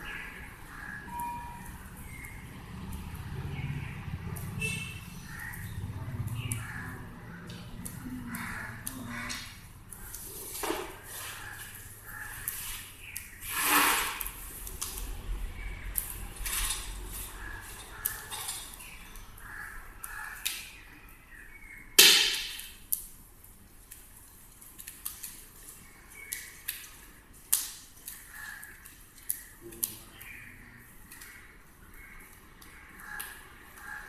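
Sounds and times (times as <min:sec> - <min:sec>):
fire crackling and popping: 0:22.3 - 0:29.9.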